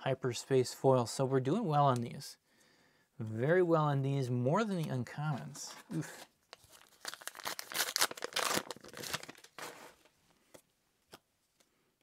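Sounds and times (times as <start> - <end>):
wrapper tearing and crinkling: 5.9 - 10.0.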